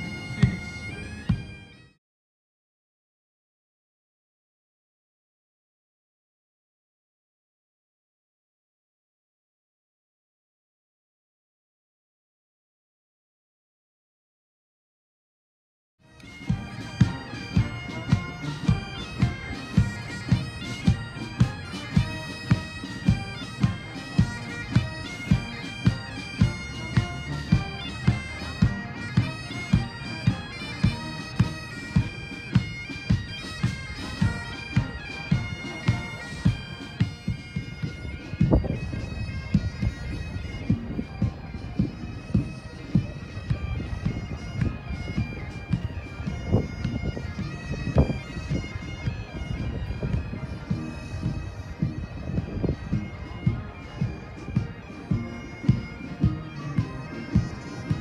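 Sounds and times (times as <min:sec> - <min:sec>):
bagpipes with drones: 0:00.0 - 0:02.0, 0:16.0 - 0:58.0.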